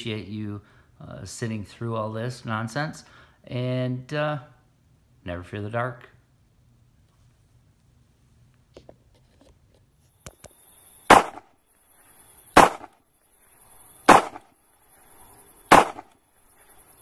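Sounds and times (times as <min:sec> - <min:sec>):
sharp bangs: 0:11.1 - 0:11.6, 0:12.5 - 0:13.0, 0:14.0 - 0:14.6, 0:15.7 - 0:16.2.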